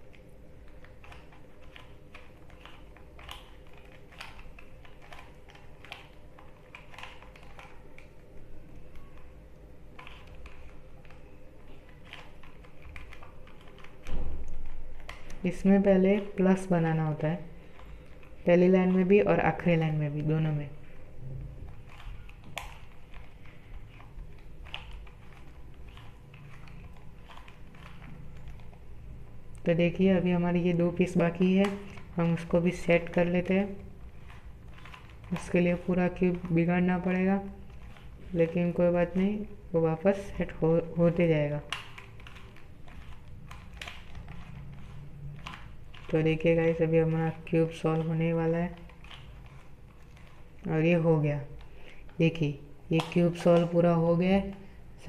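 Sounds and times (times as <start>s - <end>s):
puzzle cube clicking: 0.1s - 8.2s, 9.9s - 15.5s.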